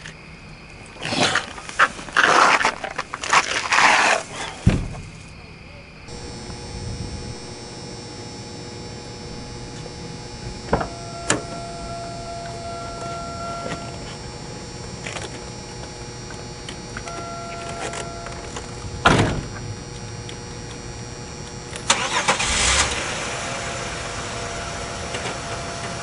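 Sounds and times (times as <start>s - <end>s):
steady hum: 0.0s - 26.0s
car two-tone warning chime: 6.1s - 26.0s.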